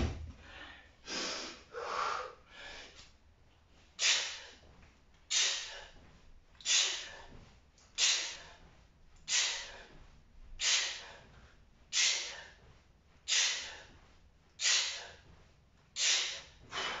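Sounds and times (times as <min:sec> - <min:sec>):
man's sharp forceful exhales: 0:04.0 - 0:04.6, 0:05.3 - 0:06.0, 0:06.6 - 0:07.3, 0:08.0 - 0:08.6, 0:09.3 - 0:10.0, 0:10.6 - 0:11.3, 0:11.9 - 0:12.6, 0:13.3 - 0:13.9, 0:14.6 - 0:15.3, 0:16.0 - 0:17.0.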